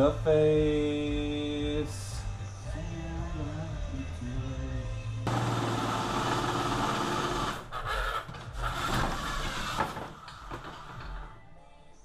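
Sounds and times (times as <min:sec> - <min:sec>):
electric drill boring through steel: 0:05.3 - 0:07.6.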